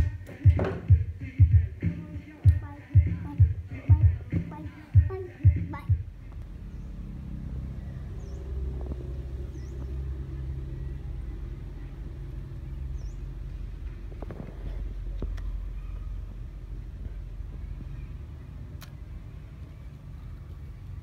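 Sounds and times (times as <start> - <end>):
low rumble: 5.0 - 21.0.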